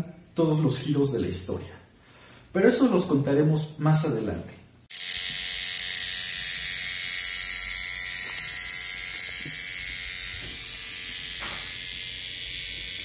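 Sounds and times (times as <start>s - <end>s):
tattoo machine buzzing: 4.9s - 13.0s.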